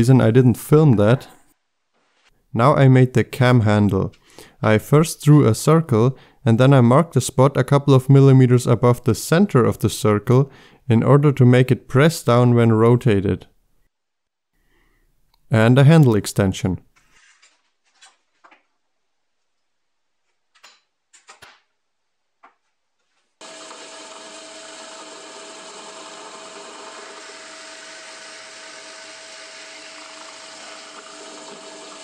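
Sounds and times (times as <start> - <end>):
drill press whining: 23.4 - 32.0.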